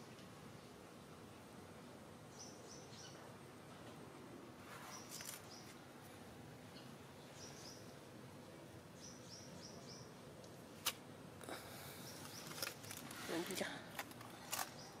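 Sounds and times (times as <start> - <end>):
small birds chirping: 1.8 - 3.5, 4.7 - 10.6, 11.4 - 15.0.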